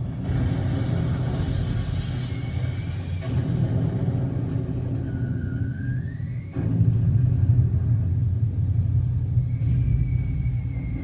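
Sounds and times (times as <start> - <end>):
low rumbling drone: 0.0 - 11.0
whistling tones gliding in pitch: 5.1 - 6.6, 9.3 - 11.0.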